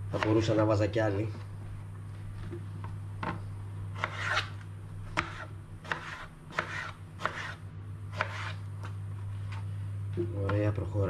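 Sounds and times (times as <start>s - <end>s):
knife cutting onto cutting board: 4.0s - 4.6s, 5.2s - 8.6s.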